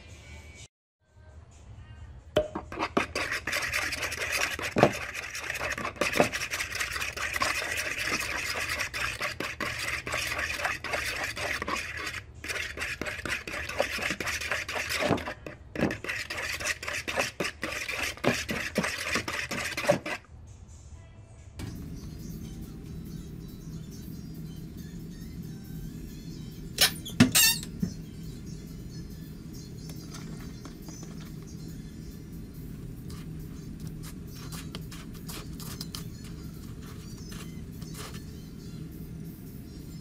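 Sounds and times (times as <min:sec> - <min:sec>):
fork beating eggs in bowl: 0:02.4 - 0:20.2, 0:32.8 - 0:38.4.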